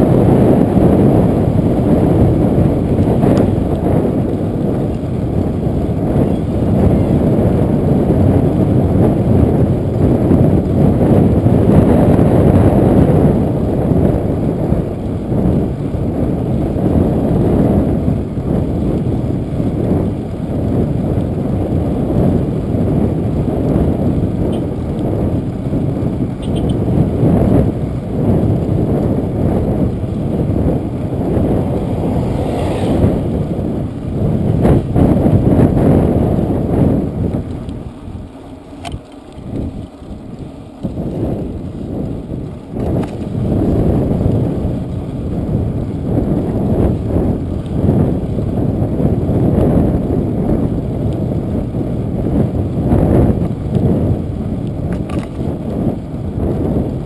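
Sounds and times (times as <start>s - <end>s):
bicycle tyre noise: 0.0s - 57.0s
wind rumbling on microphone: 0.0s - 57.0s.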